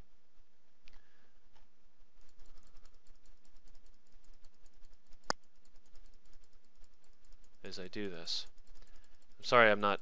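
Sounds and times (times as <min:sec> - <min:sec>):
computer mouse clicking: 0:02.2 - 0:10.0.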